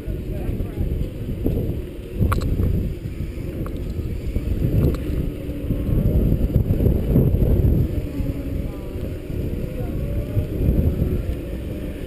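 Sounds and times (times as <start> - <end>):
wind buffeting microphone: 0.0 - 12.0
faint clicks: 4.8 - 5.2.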